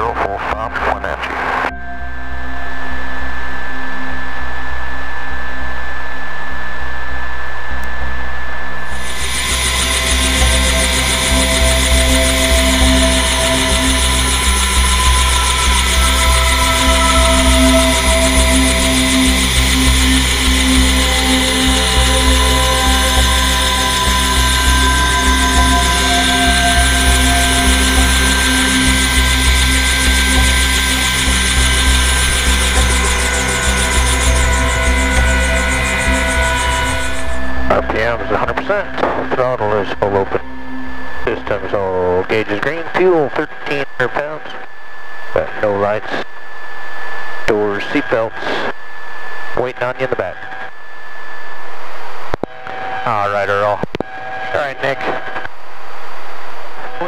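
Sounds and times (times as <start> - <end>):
helicopter rotor throb: 8.9 - 43.3
helicopter turbine whine: 8.9 - 44.3.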